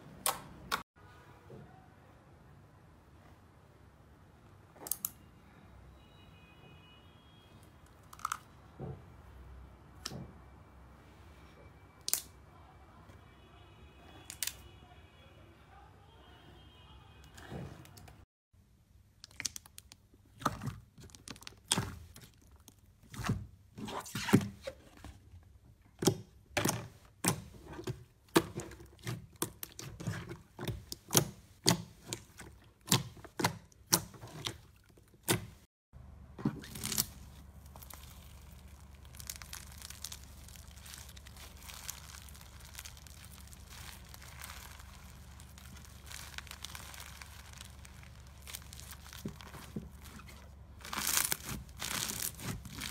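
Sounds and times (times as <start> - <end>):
crunchy slime crackling: 19.2 - 23.4, 27.2 - 35.7, 36.5 - 52.9
slime popping and squelching: 19.2 - 23.5, 26.0 - 35.7, 36.4 - 52.9.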